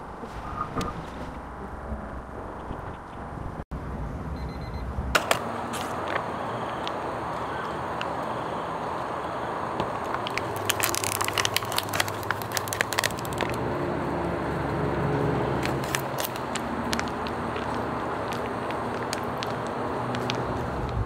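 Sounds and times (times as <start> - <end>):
food packaging crinkling: 10.0 - 13.6, 15.6 - 21.0.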